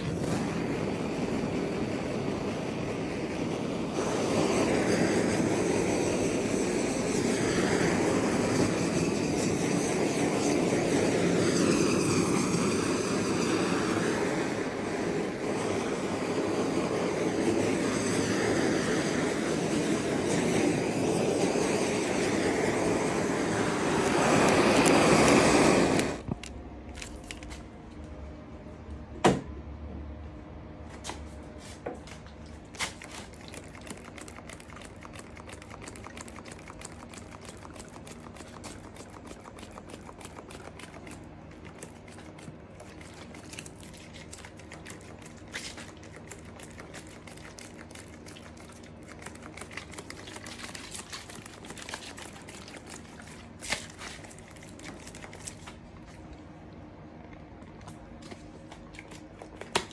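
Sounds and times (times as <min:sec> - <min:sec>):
torch flame roaring: 0:00.0 - 0:26.4.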